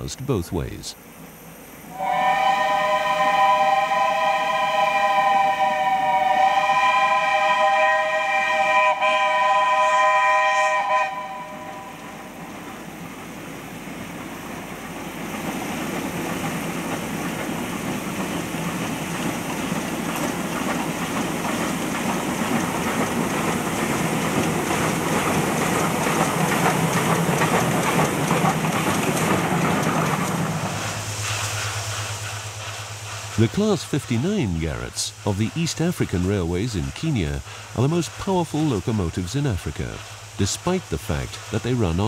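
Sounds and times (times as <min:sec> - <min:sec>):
steam locomotive exhaust: 0:01.8 - 0:42.0
coaches clattering on rails: 0:14.2 - 0:34.7.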